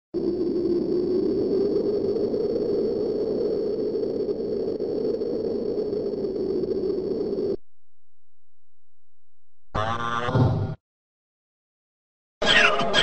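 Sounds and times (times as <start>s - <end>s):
faint thin whine: 0.2s - 7.6s.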